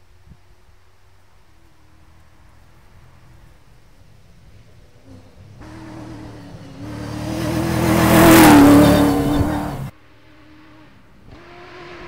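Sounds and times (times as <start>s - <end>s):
faint second rally car engine: 0.0s - 12.0s
rally car engine at full throttle: 4.6s - 12.0s.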